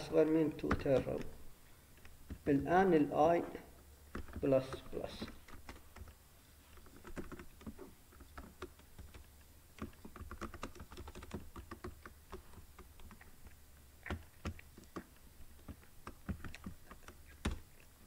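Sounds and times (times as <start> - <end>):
computer keyboard typing: 4.1 - 6.2, 6.8 - 17.8.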